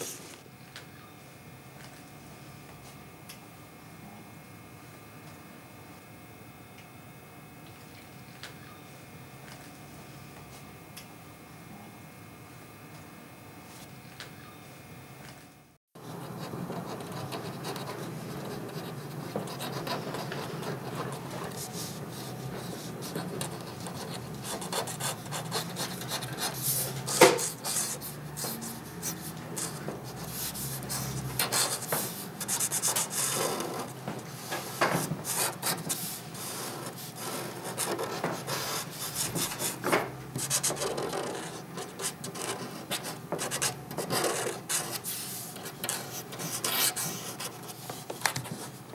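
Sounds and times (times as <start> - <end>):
pen scratching on paper: 16.1 - 48.8.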